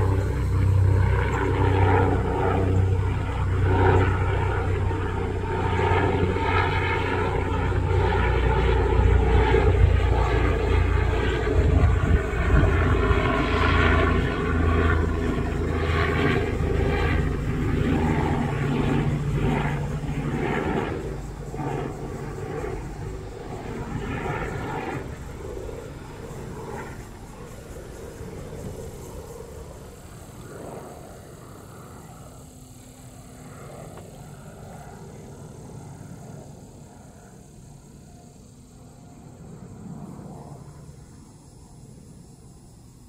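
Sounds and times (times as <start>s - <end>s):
helicopter engine rushing: 0.0s - 37.2s
helicopter rotor beating: 0.0s - 42.4s.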